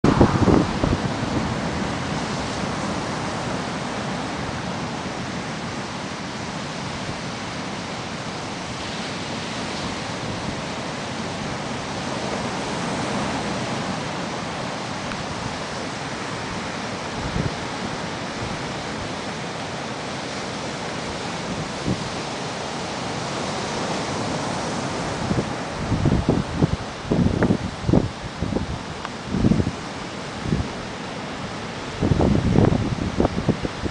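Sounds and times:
wind on microphone: 0.0s - 5.0s, 15.0s - 19.3s, 21.1s - 22.6s, 23.8s - 33.9s
ocean surf breaking on beach: 0.0s - 33.9s.

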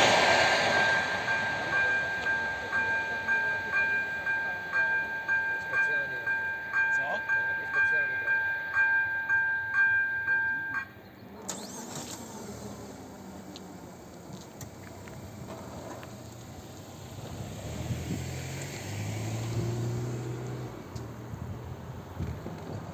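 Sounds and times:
crossing warning bell dings: 0.0s - 11.8s
car engine approaching: 0.0s - 22.9s.

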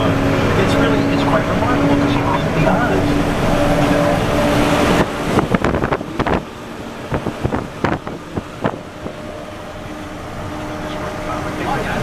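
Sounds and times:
road and wind noise in vehicle: 0.0s - 12.0s.

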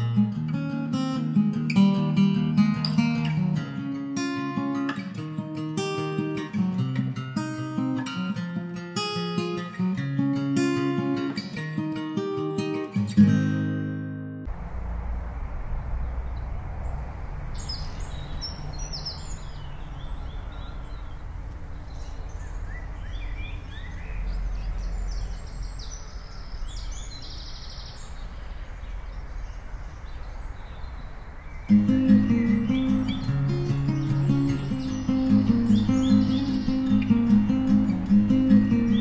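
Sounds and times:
wind rumble on microphone: 14.5s - 33.4s
small birds chirping: 14.8s - 39.0s.

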